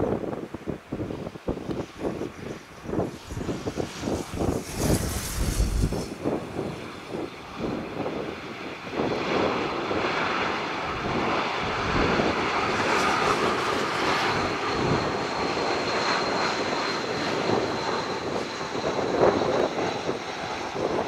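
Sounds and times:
jet engines rushing: 0.0 - 21.0
high whine: 1.7 - 7.2.

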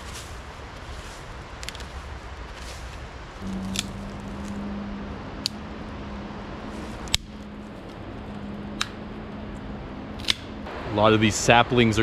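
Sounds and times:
steady low hum: 0.0 - 12.0
pine twigs snapping: 1.6 - 4.6, 6.9 - 8.0, 10.2 - 10.5.

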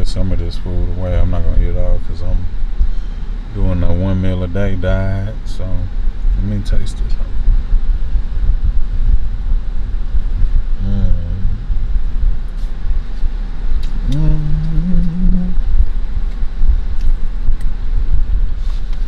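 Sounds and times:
steady low rumble: 0.0 - 19.0
man humming while chewing: 10.8 - 11.9, 13.8 - 15.9.

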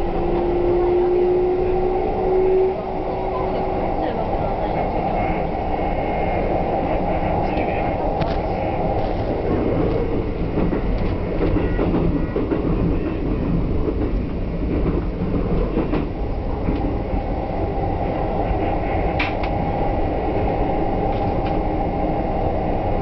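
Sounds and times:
train wheels rumbling on rails: 0.0 - 23.0
wheels clicking over rail joints: 7.4 - 17.0.

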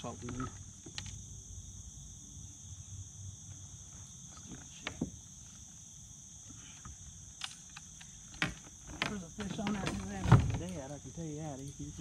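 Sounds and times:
insects chirring: 0.0 - 12.0.

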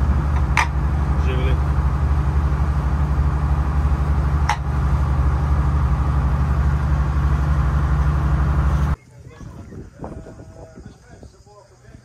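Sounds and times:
motorboat engine droning: 0.0 - 9.0.

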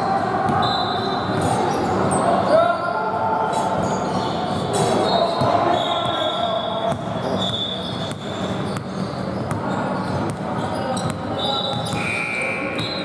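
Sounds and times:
players' voices: 0.0 - 13.0
sneaker squeaks: 0.5 - 2.9, 3.5 - 13.0
basketball bouncing in gym: 4.8 - 12.1.

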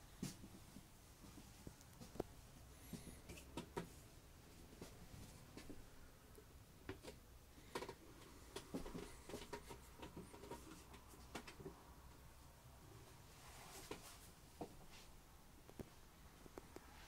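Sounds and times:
faint clicks and taps: 0.2 - 2.3, 2.9 - 4.0, 4.8 - 12.2, 15.6 - 16.9.

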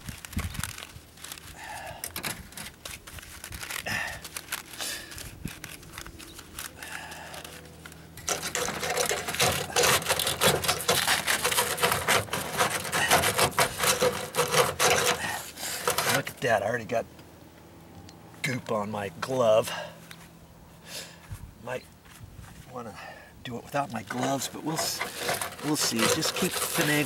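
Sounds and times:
rapid crackling strokes: 0.0 - 16.4, 23.9 - 27.0
metal flashing rustling and scraping: 0.0 - 16.6, 23.7 - 27.0.

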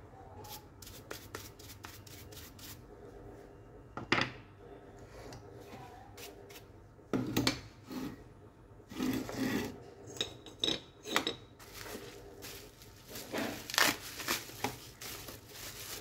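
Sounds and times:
plastic bag crinkling: 11.6 - 16.0.

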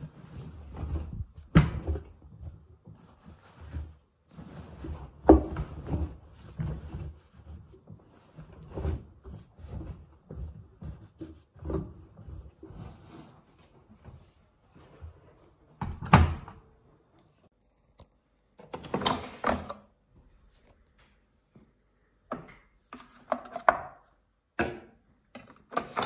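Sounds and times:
clothes thudding into washer drum: 0.2 - 13.1.

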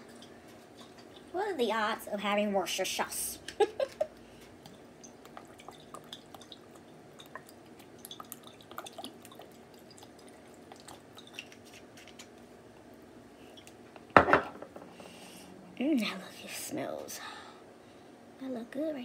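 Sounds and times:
sauce dripping into plastic bowl: 4.6 - 12.4.

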